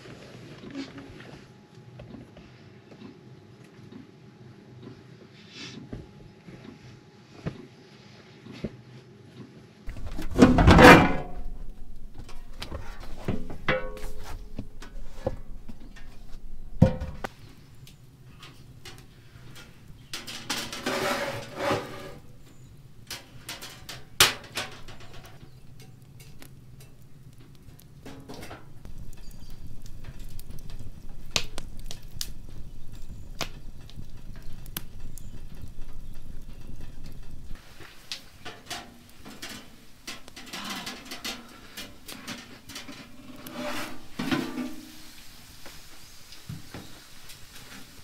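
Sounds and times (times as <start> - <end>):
floor panel rustling clatter: 9.9 - 17.3.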